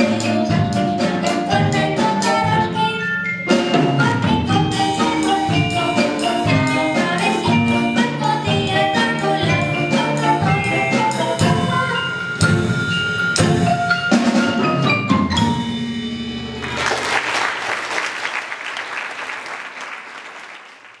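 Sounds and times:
marimbas xylophones and drums playing: 0.0s - 16.9s
audience applause: 16.6s - 21.0s.

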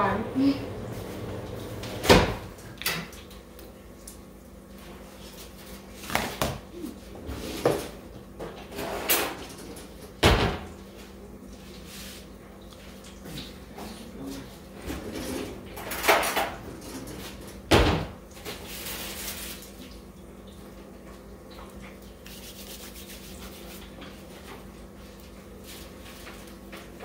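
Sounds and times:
steady low hum: 0.0s - 6.0s.

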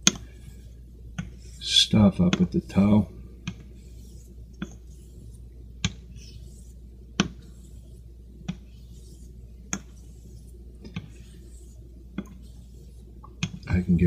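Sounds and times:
razor rasping on a whetstone: 3.7s - 13.2s.

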